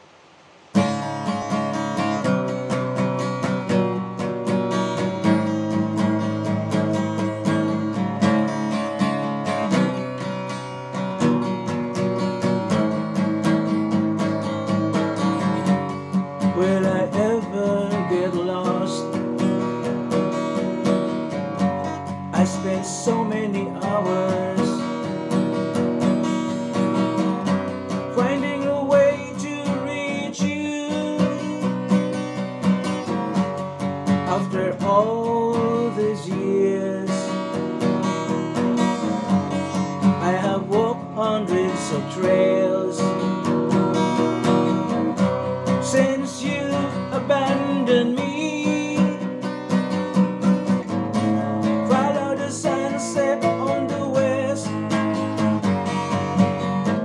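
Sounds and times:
acoustic guitar strumming: 0.0s - 57.0s
man singing a slow ballad: 16.4s - 19.8s, 22.2s - 25.3s, 28.0s - 32.2s, 34.1s - 49.5s, 51.3s - 55.6s.

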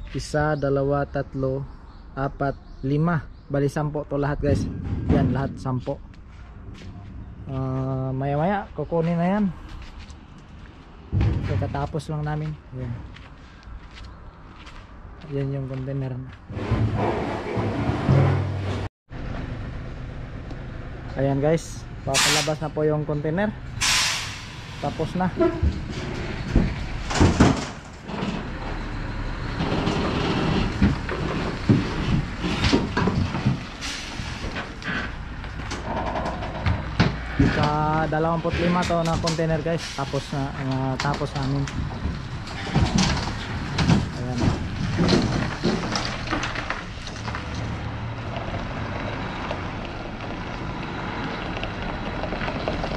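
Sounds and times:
truck engine rumbling: 0.0s - 52.9s
knocks and clanks: 4.4s - 7.9s, 11.1s - 12.5s, 16.5s - 18.9s, 25.2s - 40.0s, 40.6s - 48.6s
short hisses: 23.8s - 24.8s.

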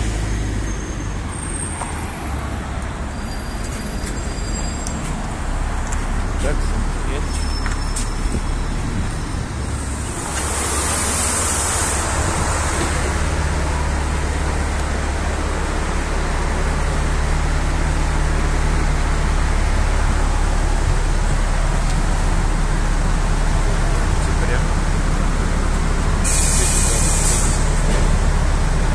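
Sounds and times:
bus engine hum: 0.0s - 28.9s
road noise: 0.0s - 28.9s
air hiss: 26.2s - 27.7s.

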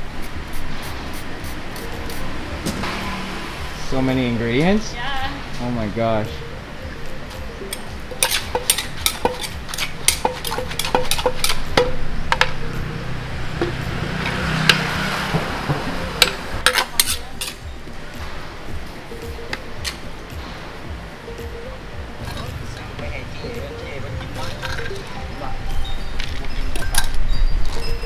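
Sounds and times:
wooden pestle pounding in mortar: 8.1s - 12.6s.

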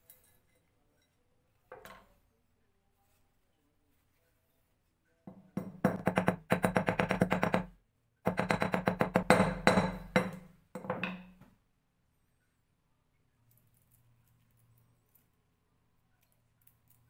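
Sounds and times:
hammer tapping on steel: 8.3s - 11.3s.

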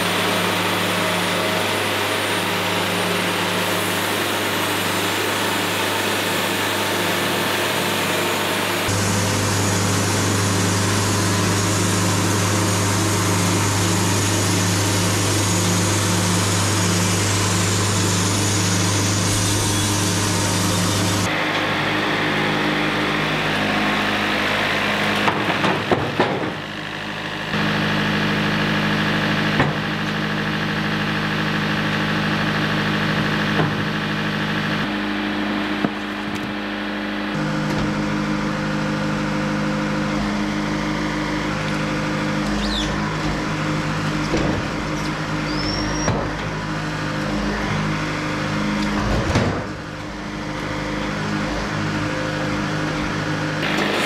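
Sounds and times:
diesel engine running: 0.0s - 54.0s.

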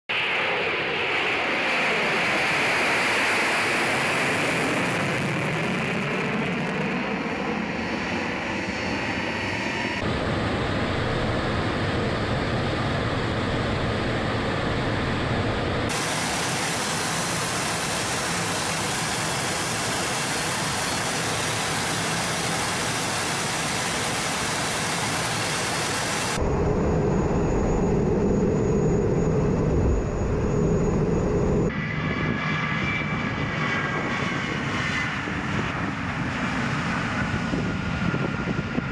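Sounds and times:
jet aircraft passing overhead: 0.1s - 38.9s
jet engine roar inside cockpit: 0.1s - 38.9s.

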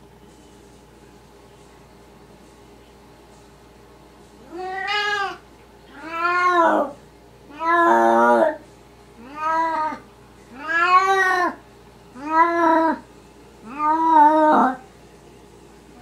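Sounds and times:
cat meowing: 4.4s - 8.6s, 9.2s - 11.6s, 12.2s - 13.0s, 13.6s - 14.8s.

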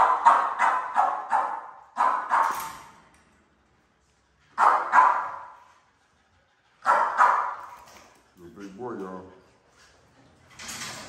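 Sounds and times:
dogs barking: 0.0s - 2.6s, 4.6s - 5.6s, 6.8s - 7.8s.

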